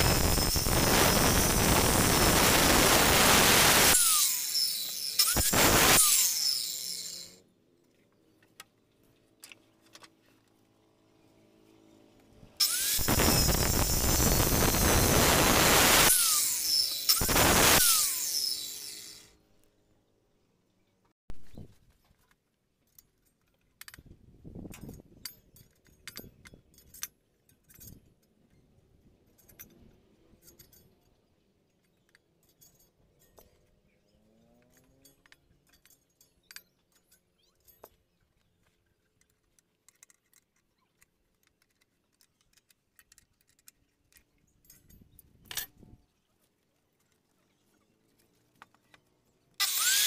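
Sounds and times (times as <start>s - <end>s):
metal tools clinking and knocking: 22.0s - 46.1s.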